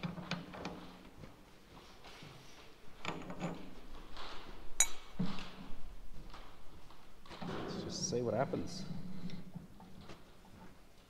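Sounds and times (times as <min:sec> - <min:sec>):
metallic clinks and knocks: 0:03.0 - 0:05.4
ringing metal clink: 0:04.8 - 0:05.1.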